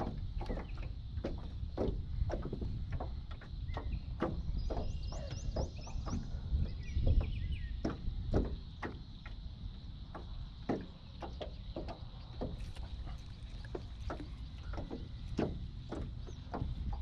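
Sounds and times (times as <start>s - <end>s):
low wind rumble: 0.0s - 17.0s
knocks on aluminum boat hull: 13.8s - 17.0s.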